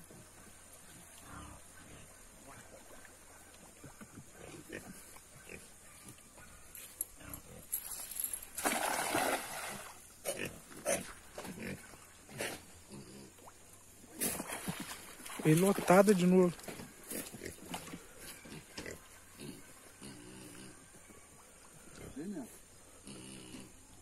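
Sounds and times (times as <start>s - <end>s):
net splashing into water: 8.5s - 10.0s, 14.2s - 16.0s.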